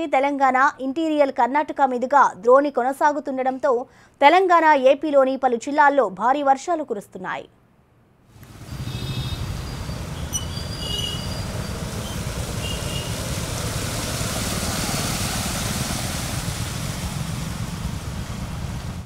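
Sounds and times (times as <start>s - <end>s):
motorcycle engines rumbling: 8.4s - 14.8s, 15.4s - 19.0s
tyres splashing through water: 8.4s - 19.0s
faint high chirps: 9.6s - 13.1s.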